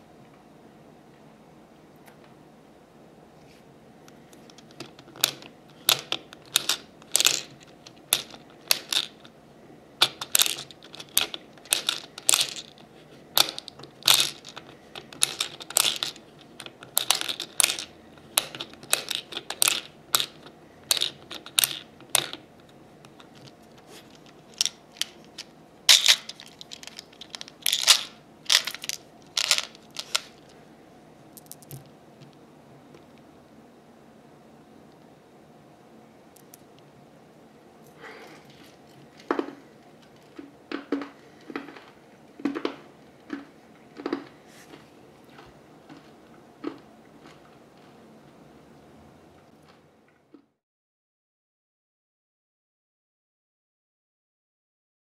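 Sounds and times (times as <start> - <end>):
candy pellets rattling: 4.6 - 9.3, 10.0 - 22.4, 23.2 - 30.5.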